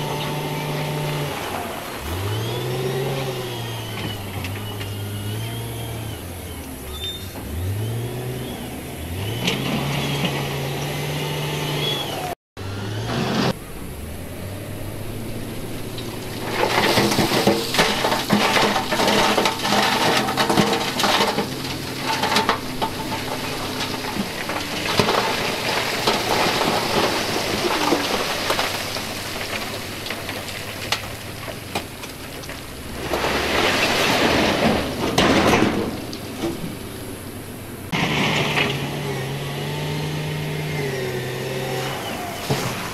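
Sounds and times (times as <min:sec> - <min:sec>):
wheel loader diesel engine: 0:00.0 - 0:42.9
stones clattering and scraping: 0:16.0 - 0:36.8.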